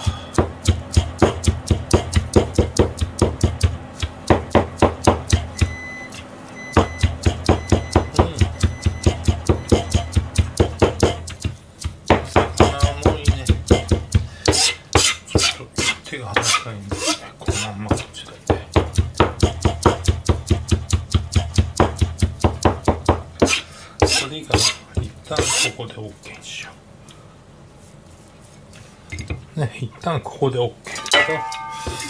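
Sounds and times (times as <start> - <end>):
cleaver chopping on plastic board: 0.0 - 5.8, 6.7 - 25.8.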